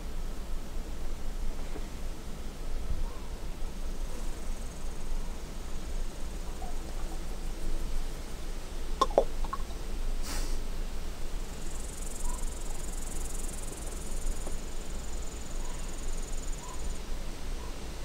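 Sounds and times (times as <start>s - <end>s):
insects trilling: 4.0s - 10.0s, 11.3s - 18.0s.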